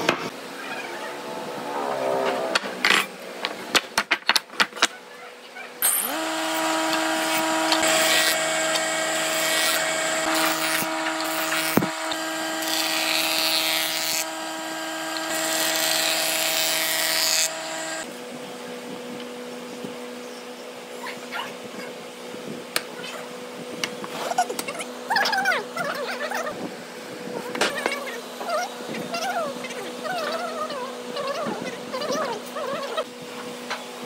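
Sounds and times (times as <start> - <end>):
table saw cutting wood: 1.1 - 3.3, 5.8 - 18.1.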